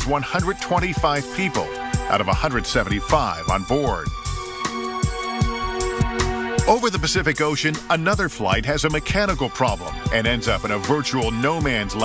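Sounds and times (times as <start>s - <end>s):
steady drum beat: 0.0s - 12.0s.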